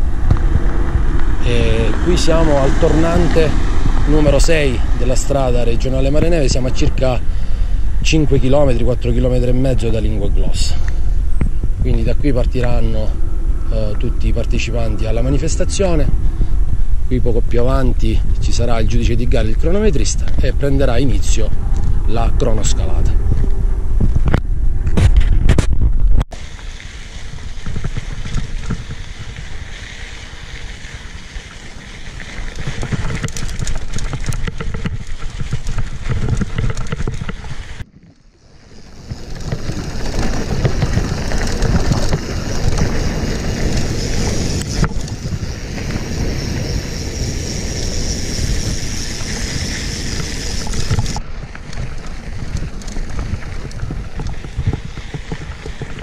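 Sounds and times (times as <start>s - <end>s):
bike rattling: 0.0s - 56.0s
wind buffeting microphone: 0.0s - 56.0s
bike tyres crunching on stones: 26.4s - 56.0s.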